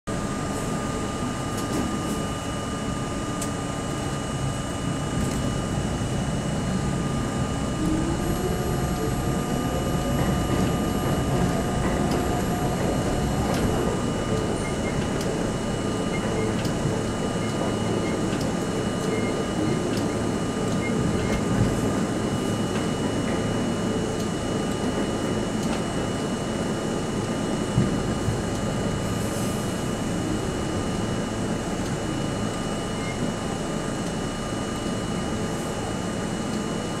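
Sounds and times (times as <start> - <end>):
train whine rising in pitch: 0.2 - 25.4
train wheels rumbling on rails: 3.1 - 37.0.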